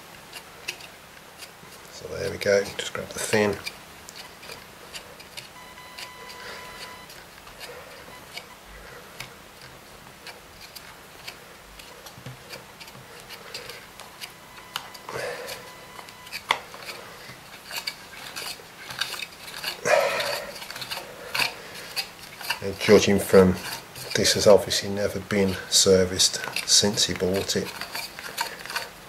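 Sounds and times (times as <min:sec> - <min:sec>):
plastic and metal clicks and scrapes: 0:00.0 - 0:29.0.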